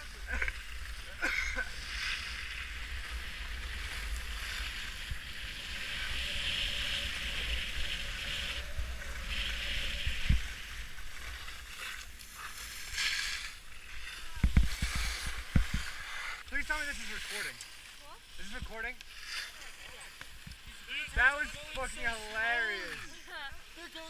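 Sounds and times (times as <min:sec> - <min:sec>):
skis scraping on snow: 0:00.0 - 0:24.0
wind on microphone: 0:02.4 - 0:12.0, 0:14.2 - 0:16.1.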